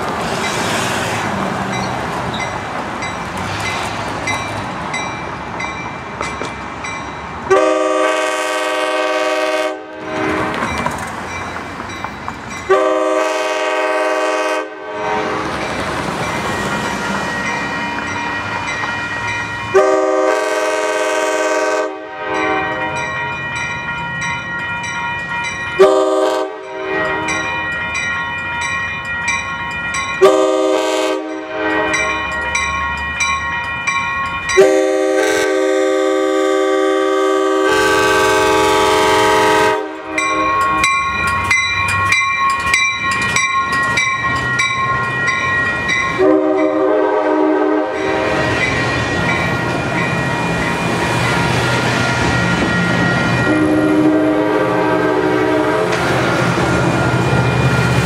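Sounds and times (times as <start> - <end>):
crossing bell ringing: 1.6 - 58.0
train air horn blasts: 7.5 - 10.5, 12.7 - 15.4, 19.7 - 23.0, 25.8 - 27.4, 30.2 - 32.2, 34.6 - 40.6, 46.2 - 48.4, 53.5 - 56.0.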